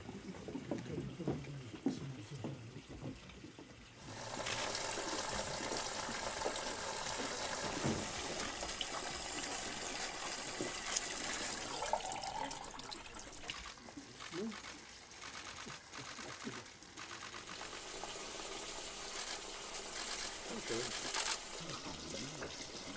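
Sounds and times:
running water rushing: 0:04.0 - 0:13.8, 0:14.5 - 0:22.9.

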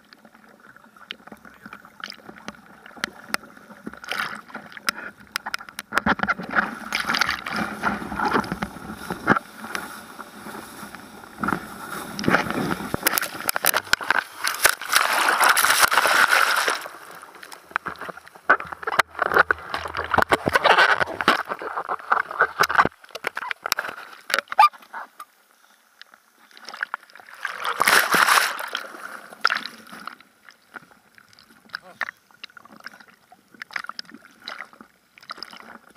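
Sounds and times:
ocean whitewater rushing and splashing: 0:06.4 - 0:22.6
spattering crackles of water: 0:11.4 - 0:25.0.

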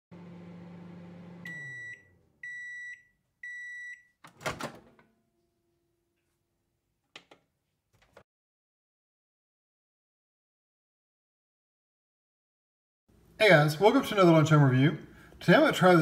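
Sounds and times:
microwave oven humming: 0:00.1 - 0:02.7
microwave beeps: 0:01.2 - 0:04.2.

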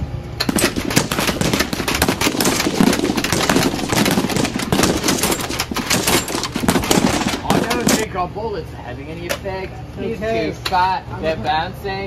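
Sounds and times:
rapid automatic gunfire: 0:00.4 - 0:08.1.

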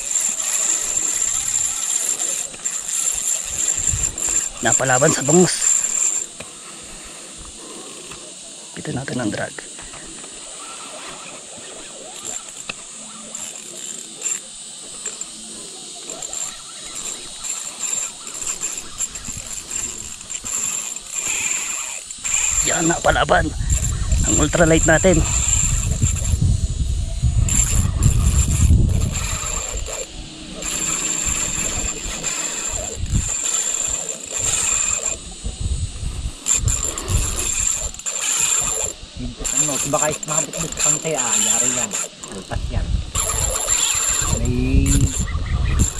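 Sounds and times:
faint irregular noise: 0:00.0 - 0:45.9
fishing reel whirring and clicking: 0:00.0 - 0:45.9
high-pitched insect buzzing: 0:00.0 - 0:45.9.

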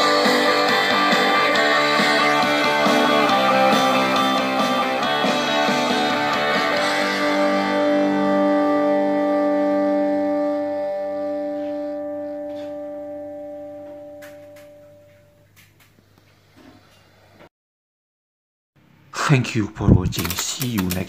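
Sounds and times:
guitar music: 0:00.0 - 0:15.6.

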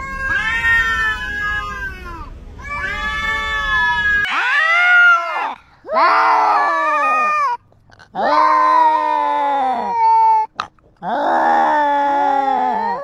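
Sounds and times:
cat meowing loudly: 0:00.0 - 0:07.6.

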